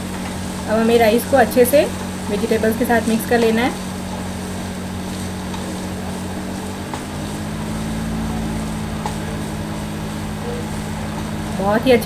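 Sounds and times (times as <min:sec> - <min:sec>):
low mechanical hum: 0:00.0 - 0:12.0
wooden spatula tapping frying pan: 0:09.0 - 0:09.4.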